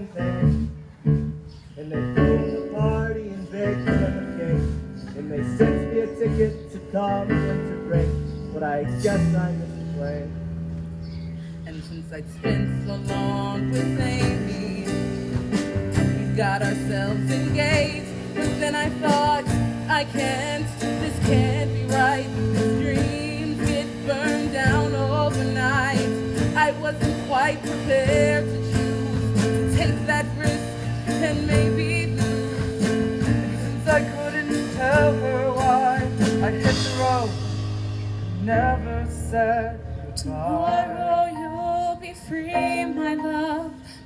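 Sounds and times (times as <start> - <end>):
musical theatre accompaniment: 11.6 - 44.0.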